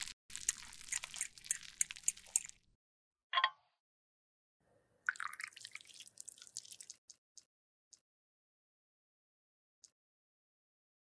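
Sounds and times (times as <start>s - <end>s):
rod stirring thick liquid: 0.3s - 2.6s.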